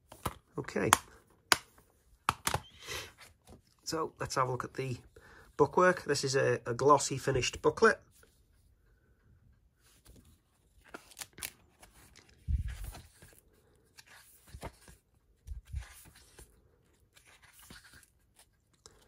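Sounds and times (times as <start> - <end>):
paper pages rustling: 9.8 - 19.0.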